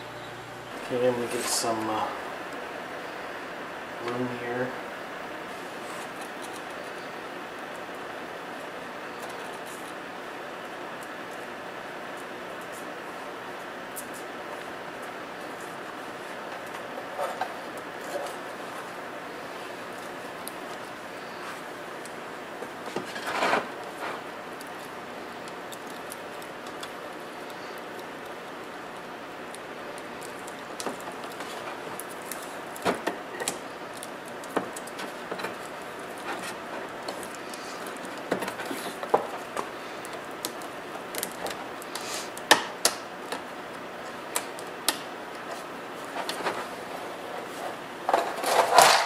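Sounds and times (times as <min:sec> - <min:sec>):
background hiss: 0:00.0 - 0:35.1, 0:35.8 - 0:43.3
wires and tape clicking and rustling: 0:05.5 - 0:49.0.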